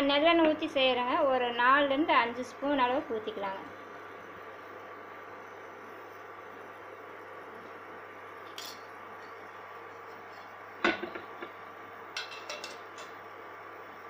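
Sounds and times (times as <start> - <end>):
steady low hum: 0.0 - 14.0
metal utensils clinking: 8.5 - 9.4, 12.2 - 13.2.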